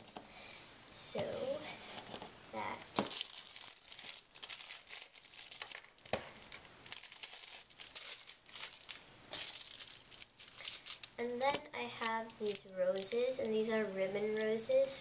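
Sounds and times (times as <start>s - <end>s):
plastic bags crinkling: 2.6s - 13.7s.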